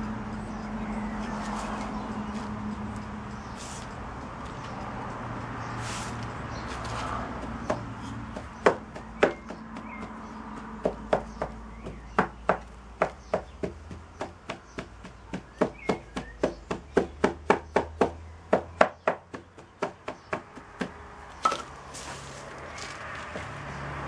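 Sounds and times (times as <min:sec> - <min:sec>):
loose sand rustling: 0:03.3 - 0:04.1, 0:05.6 - 0:07.2, 0:21.6 - 0:23.7.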